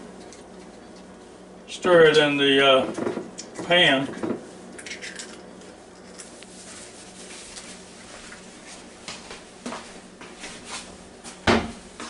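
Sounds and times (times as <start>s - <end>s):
fabric rubbing on microphone: 6.5s - 8.9s.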